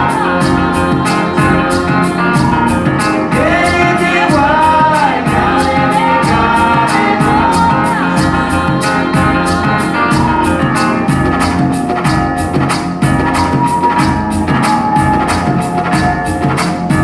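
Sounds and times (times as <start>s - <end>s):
person singing: 0.0s - 11.0s
music over loudspeakers: 0.0s - 17.0s.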